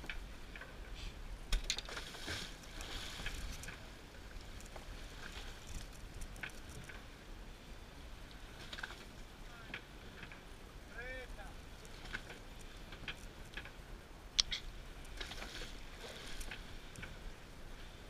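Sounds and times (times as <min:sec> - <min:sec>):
water lapping against boat hull: 0:00.0 - 0:18.0
small knocks and clicks: 0:03.2 - 0:07.1, 0:11.8 - 0:13.8.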